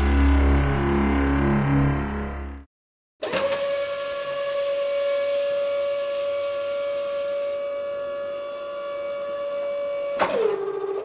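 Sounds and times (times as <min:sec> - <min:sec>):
machine whine: 0:00.0 - 0:02.6.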